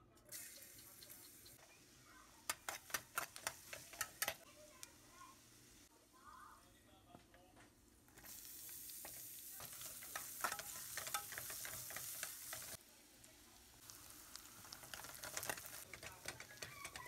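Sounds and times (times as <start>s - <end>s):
onions sizzling in hot oil: 0.3s - 6.6s, 8.0s - 17.0s
spatula scraping a pan: 2.4s - 4.5s, 8.2s - 12.8s, 14.3s - 17.0s.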